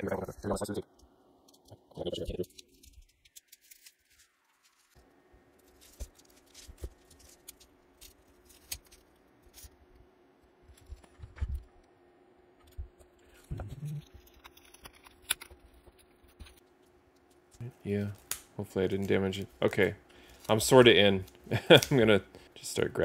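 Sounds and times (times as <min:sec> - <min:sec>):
plastic bags and tape crinkling: 0:02.1 - 0:09.9, 0:13.4 - 0:22.2.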